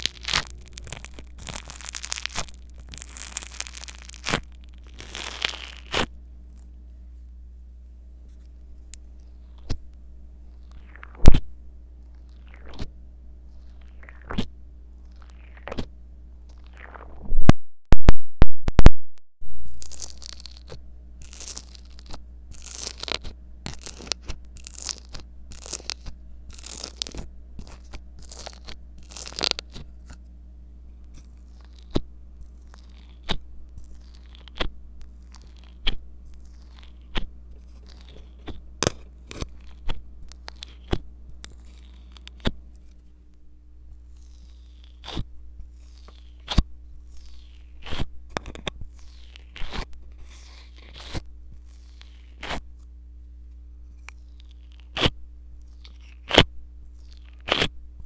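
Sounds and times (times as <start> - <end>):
sticky slime pops: 0.0 - 6.1
foam beads crackling crunch: 0.0 - 6.8, 8.2 - 9.9, 10.5 - 11.4, 12.0 - 12.9, 13.5 - 15.9, 16.5 - 17.2, 19.6 - 30.2, 30.9 - 43.0, 43.9 - 52.8, 53.8 - 57.8.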